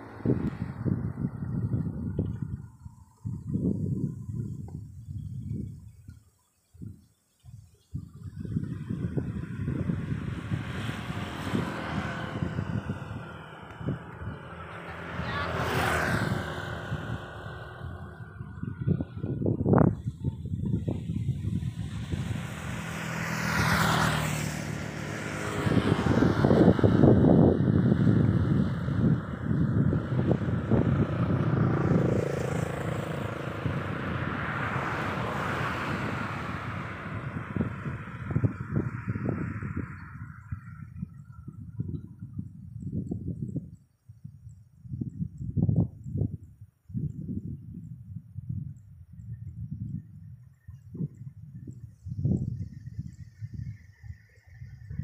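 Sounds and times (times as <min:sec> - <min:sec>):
vehicle passing by: 0:00.0 - 0:04.6, 0:08.2 - 0:43.1
distant engine hum: 0:00.0 - 0:06.5, 0:07.4 - 0:43.8
wind buffeting microphone: 0:00.0 - 0:55.0.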